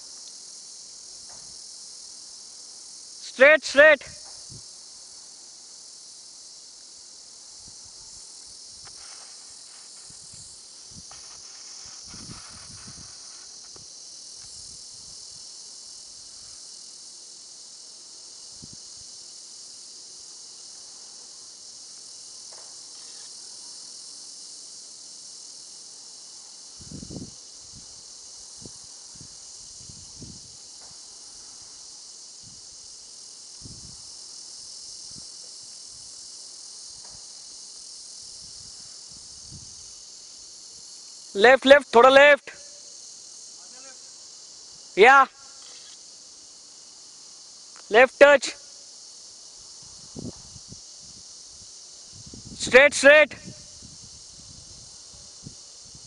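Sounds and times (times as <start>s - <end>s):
high-pitched insect chorus: 0.0s - 56.0s.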